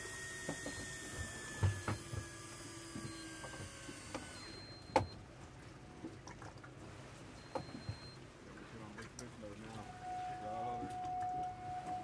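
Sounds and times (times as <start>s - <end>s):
small electric motor whine: 0.0s - 5.0s.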